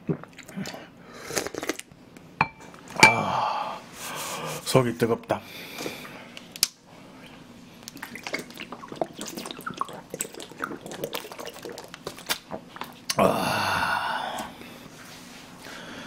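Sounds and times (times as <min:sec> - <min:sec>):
man exhaling loudly: 0:03.1 - 0:03.8, 0:13.2 - 0:14.5.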